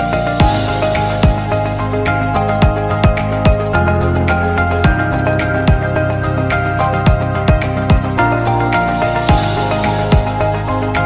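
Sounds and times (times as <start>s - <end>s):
background music with held chords: 0.0s - 11.0s
beat of low thuds and ticks: 2.4s - 3.8s, 4.9s - 5.9s, 6.8s - 8.2s.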